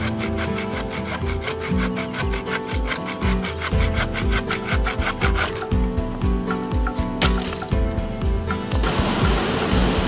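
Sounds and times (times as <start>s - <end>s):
hand saw cutting branch: 0.0s - 5.7s
faint background music: 0.0s - 10.0s.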